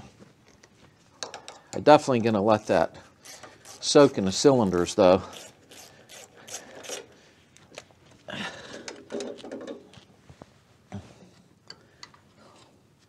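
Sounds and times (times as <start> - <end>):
hand ratchet clicking: 3.2 - 3.9, 5.3 - 7.1.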